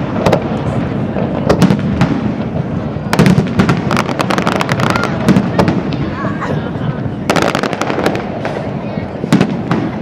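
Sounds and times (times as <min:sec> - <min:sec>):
fireworks bursting and crackling: 0:00.0 - 0:10.0.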